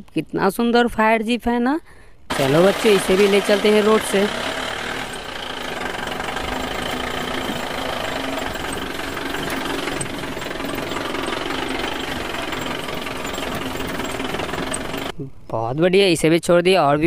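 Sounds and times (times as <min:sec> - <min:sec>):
engine running with knocking rattle: 0:02.3 - 0:15.2.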